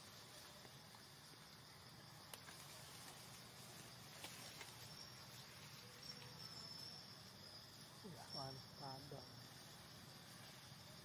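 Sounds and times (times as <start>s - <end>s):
high-pitched insect drone: 0.0s - 11.0s
faint ticks: 2.2s - 3.3s.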